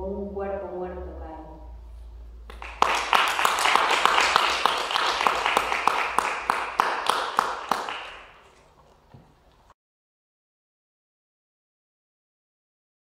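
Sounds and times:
people clapping: 2.5 - 8.7.

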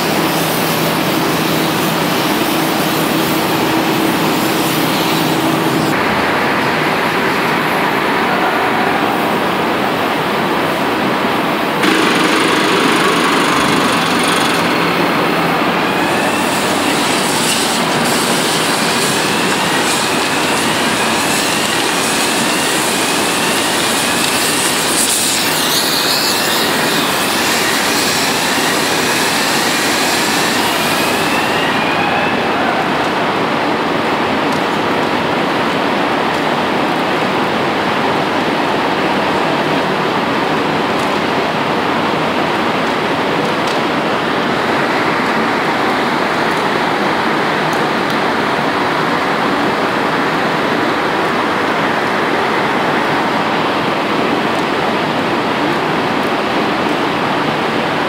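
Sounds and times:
loud rushing of molten metal: 11.8 - 32.4.

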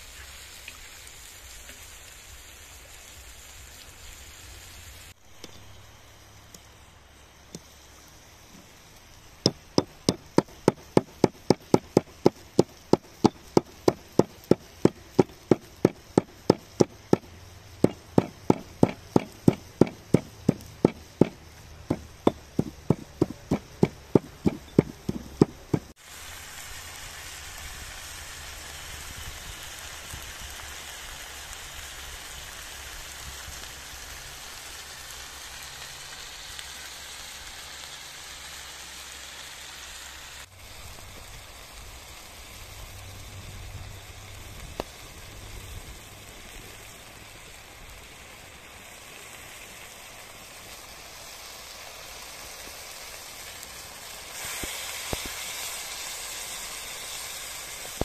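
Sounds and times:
meat sizzling in a pan: 0.0 - 58.0
pestle striking stone mortar: 9.5 - 25.9.

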